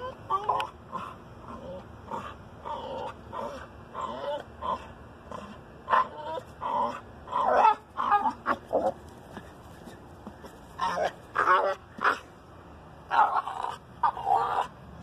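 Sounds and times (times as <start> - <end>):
dog whining: 0.0 - 8.9.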